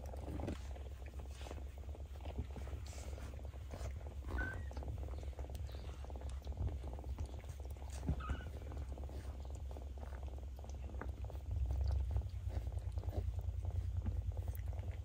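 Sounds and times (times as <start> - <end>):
cat purring: 0.0 - 15.0
cat high squeaks: 4.3 - 4.8, 8.1 - 8.6.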